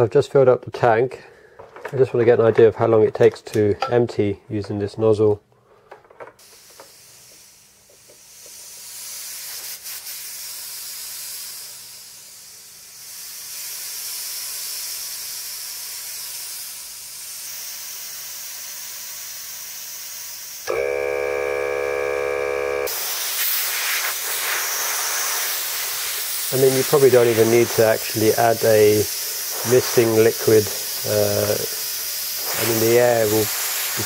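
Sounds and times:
compressed air hissing from nozzle: 0:06.4 - 0:20.7, 0:22.9 - 0:34.0
loud droning tone with low hum: 0:20.8 - 0:22.9.

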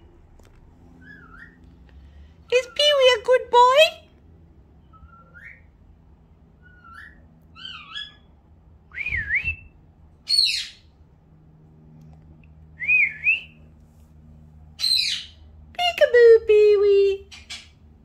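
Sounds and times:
bird whistling: 0:01.0 - 0:01.6, 0:04.9 - 0:05.7
harsh high-pitched bird call: 0:06.6 - 0:08.3, 0:10.3 - 0:10.8, 0:14.8 - 0:15.4.

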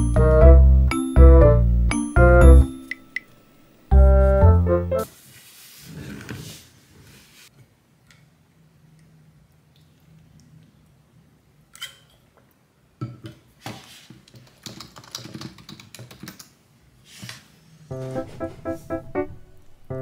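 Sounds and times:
soft plucked background music: 0:00.0 - 0:05.1, 0:17.9 - 0:20.0
computer keyboard clicks: 0:14.4 - 0:16.5.

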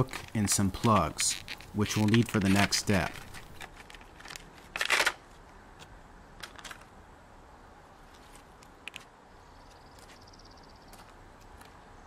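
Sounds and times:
plastic packaging crinkling: 0:00.0 - 0:05.2.

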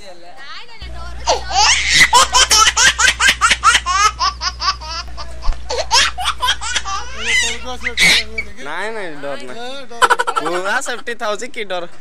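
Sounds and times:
steady low hum: 0:00.8 - 0:11.2
person laughing hard: 0:01.3 - 0:08.4.

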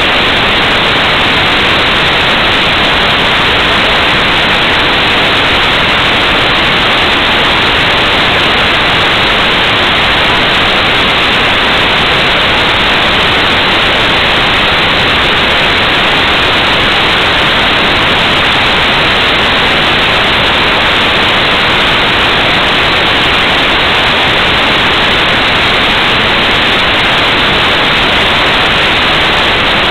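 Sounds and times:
loud static hiss: 0:00.0 - 0:29.9.

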